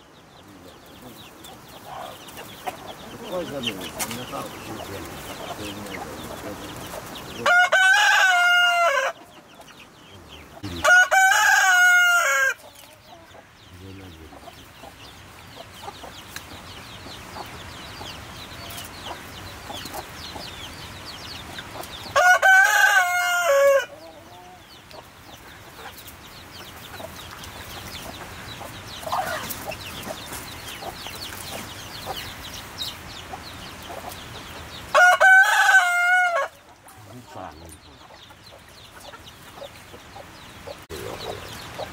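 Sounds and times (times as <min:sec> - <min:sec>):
rooster crowing: 0:07.4 - 0:09.2, 0:10.6 - 0:12.6, 0:22.1 - 0:24.6, 0:34.9 - 0:36.6.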